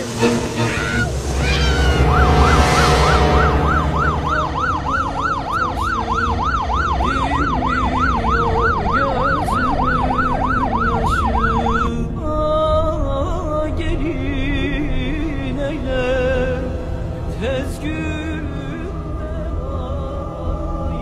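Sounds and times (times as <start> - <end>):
burst of noise: 0.0 - 6.8
police siren yelping: 0.7 - 12.0.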